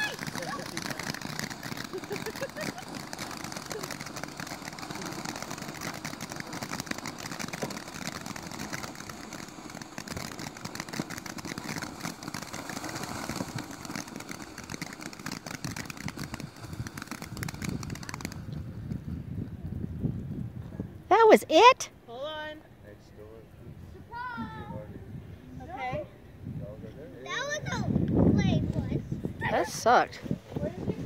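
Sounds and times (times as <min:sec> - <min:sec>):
fountain firework hissing and crackling: 0:00.0 - 0:19.4.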